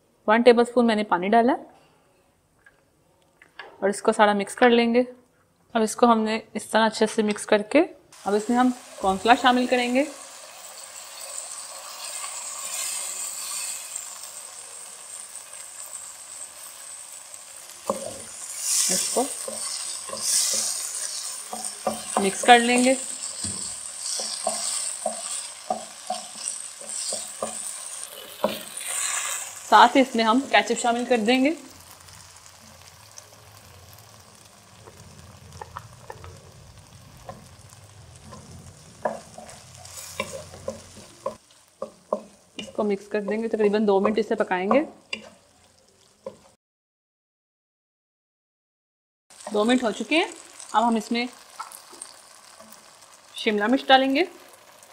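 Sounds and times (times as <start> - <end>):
chicken sizzling in a wok: 8.2 - 46.6, 49.3 - 54.9
wooden spatula stirring: 17.6 - 46.5.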